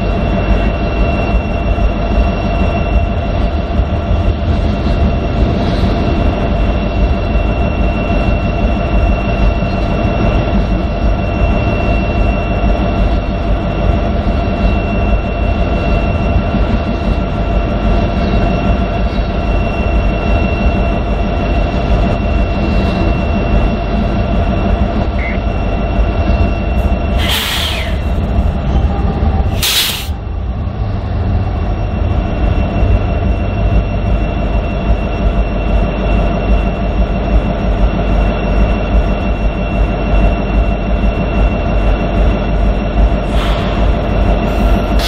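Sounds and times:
diesel locomotive idling: 0:00.0 - 0:45.0
freight train rolling past: 0:00.0 - 0:45.0
air hisses: 0:27.2 - 0:28.2, 0:29.5 - 0:30.2, 0:43.3 - 0:43.9.

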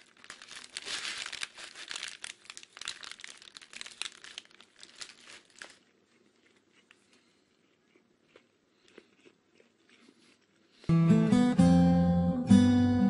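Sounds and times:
paper wrapper crinkling and tearing: 0:00.0 - 0:06.9.

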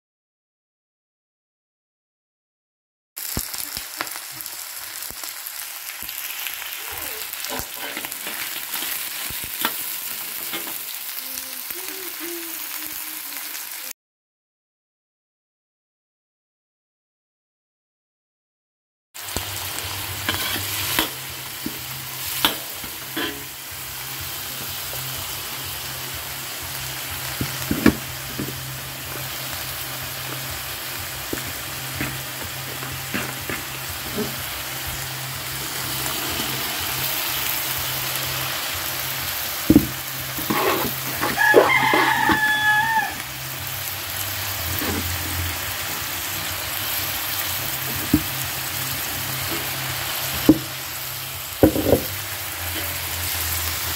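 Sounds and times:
vegetables sizzling in a wok: 0:03.2 - 0:14.0, 0:19.2 - 0:53.9
metal spatula scraping pan: 0:07.4 - 0:10.8, 0:20.2 - 0:21.8, 0:22.4 - 0:23.6, 0:32.8 - 0:34.5, 0:40.3 - 0:42.5.

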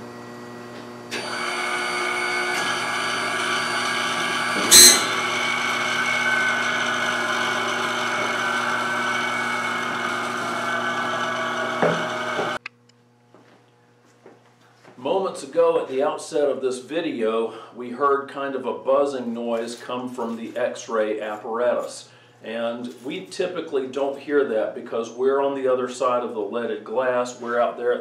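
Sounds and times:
x-ray machine buzzing: 0:00.4 - 0:13.4.

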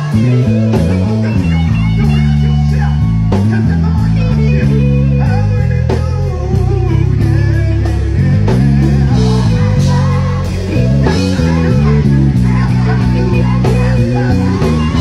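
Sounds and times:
electric guitar lines: 0:00.0 - 0:15.0
keyboard chords: 0:00.0 - 0:15.0
low bass: 0:00.0 - 0:15.0.

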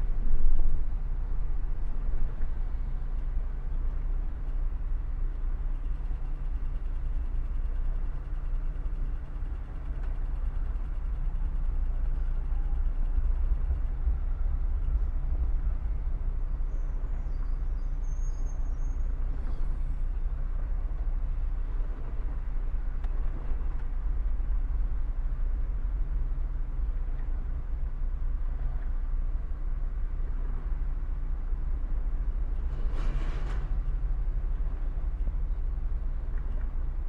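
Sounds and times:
road and engine rumble: 0:00.0 - 0:37.0
faint high squeal: 0:11.8 - 0:13.5, 0:16.4 - 0:20.0.

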